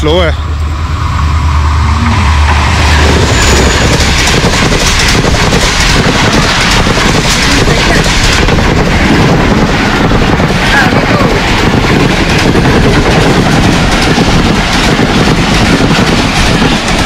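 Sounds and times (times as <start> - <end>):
diesel locomotive engine hum: 0.0 - 17.0
train coaches rushing past: 0.0 - 17.0
wheels clattering on rails: 2.4 - 17.0.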